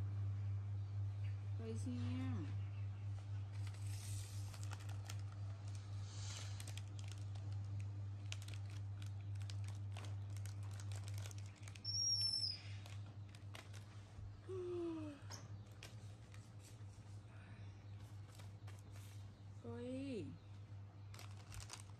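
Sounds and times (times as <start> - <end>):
low steady hum: 0.0 - 21.9
plastic wrapper crinkling: 3.5 - 14.4, 15.6 - 16.8, 18.0 - 19.1, 21.0 - 21.9.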